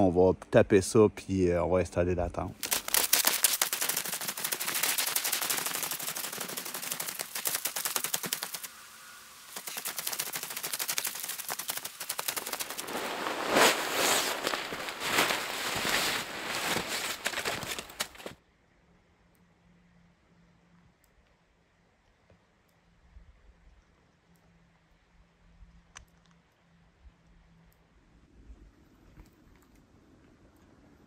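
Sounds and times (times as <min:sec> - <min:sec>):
boots crunching snow: 0:12.7 - 0:18.4.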